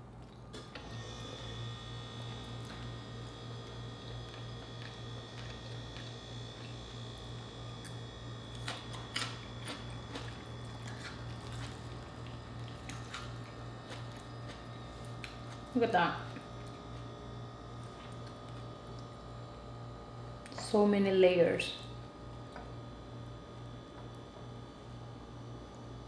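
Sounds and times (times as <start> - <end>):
steady low hum: 0.0 - 26.0
soft chewing: 3.6 - 15.7, 16.3 - 19.3.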